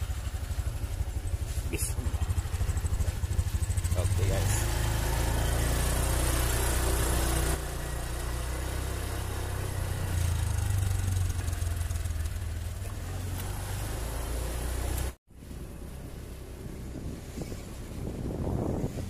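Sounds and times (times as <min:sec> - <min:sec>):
motorcycle engine running: 0:00.0 - 0:19.0
rushing wind noise: 0:15.9 - 0:19.0.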